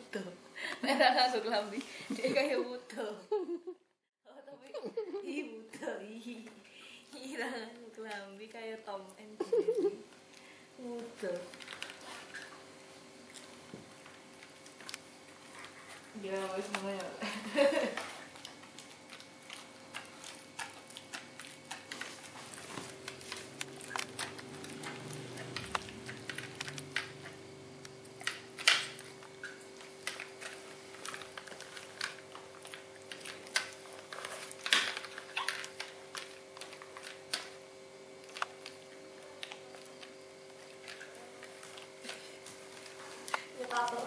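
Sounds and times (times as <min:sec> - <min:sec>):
puppy gnawing a rawhide bone: 0:10.1 - 0:44.0.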